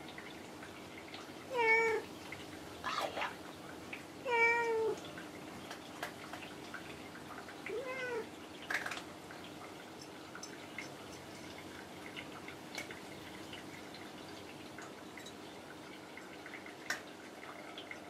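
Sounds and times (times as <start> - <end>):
cat meowing: 1.5 - 2.0, 4.2 - 5.0, 7.7 - 8.3.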